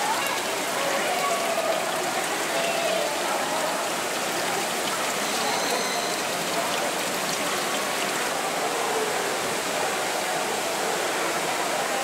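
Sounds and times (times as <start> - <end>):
rushing water: 0.0 - 12.0
faint high whistle: 5.2 - 6.2.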